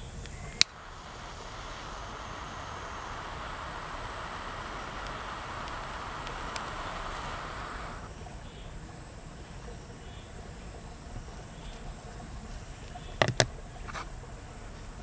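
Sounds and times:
torch lighter flame hissing: 0.0 - 8.1.

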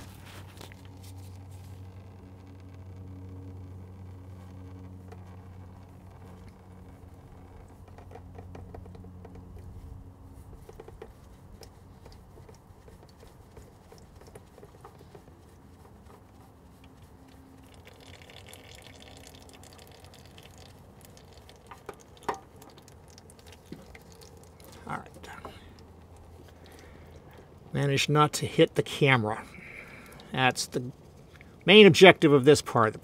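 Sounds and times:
oil trickling and dripping: 0.0 - 33.0.

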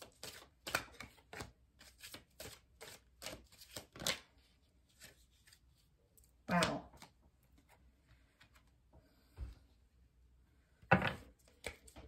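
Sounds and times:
cards being shuffled: 0.0 - 4.3.

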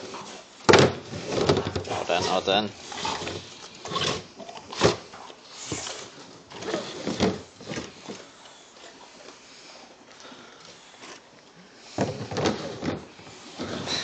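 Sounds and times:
plastic container knocks and rustles: 0.7 - 2.4, 6.6 - 7.9, 12.0 - 13.8.

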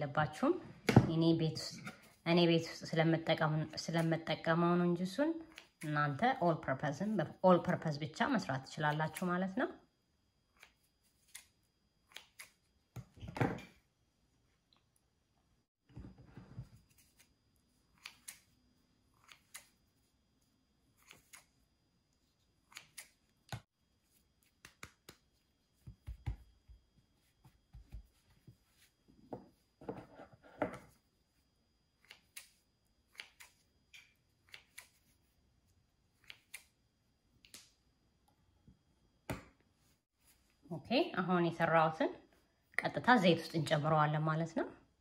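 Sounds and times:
hands shaping dough: 15.9 - 41.4.

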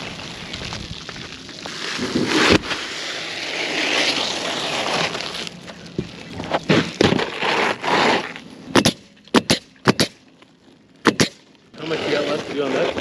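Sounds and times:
shingles scraping and rustling: 0.0 - 10.0, 11.1 - 13.0.

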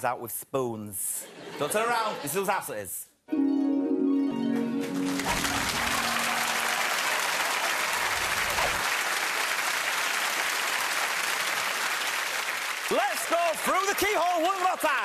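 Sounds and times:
studio audience applauding: 4.4 - 15.0.

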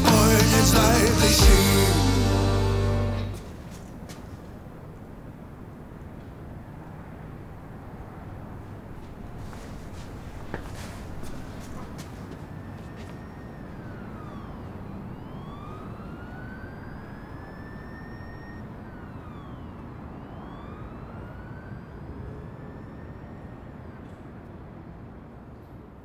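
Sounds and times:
city traffic rumble: 0.0 - 26.0
emergency vehicle siren wailing: 11.6 - 24.9.

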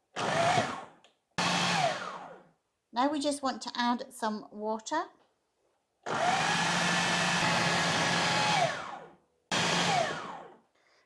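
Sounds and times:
food processor motor running: 0.2 - 2.4, 6.1 - 10.6.

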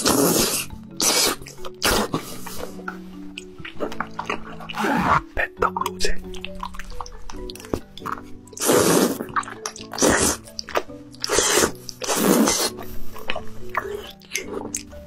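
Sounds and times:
person slurping food: 0.0 - 2.8, 3.6 - 5.3, 8.0 - 14.9
background music: 0.0 - 15.0.

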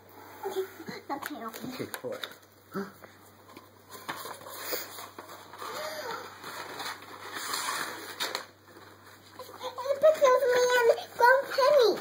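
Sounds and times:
paper rustling and crinkling: 3.5 - 12.0.

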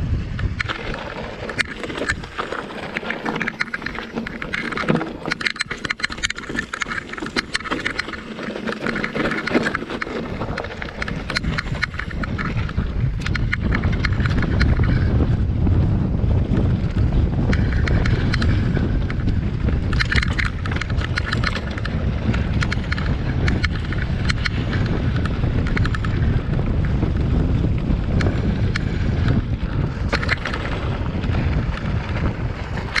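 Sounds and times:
bike rattling: 0.0 - 33.0
wind buffeting microphone: 0.0 - 33.0
tyres crunching over stones: 0.5 - 12.8.

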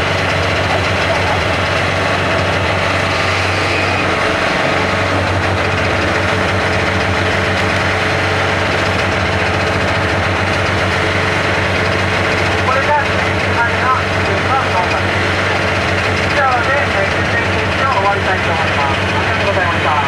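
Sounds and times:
engine idling low hum: 0.0 - 20.0.

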